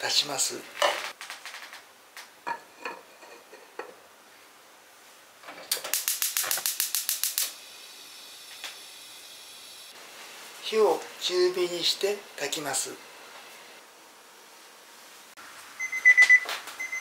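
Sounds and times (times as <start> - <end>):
gas burner hissing: 5.6 - 13.9
gas stove igniter clicking: 5.7 - 7.6.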